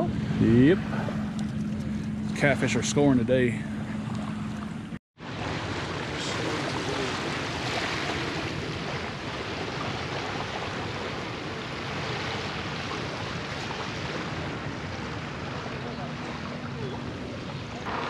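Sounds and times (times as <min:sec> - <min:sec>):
water rushing: 0:02.4 - 0:18.0.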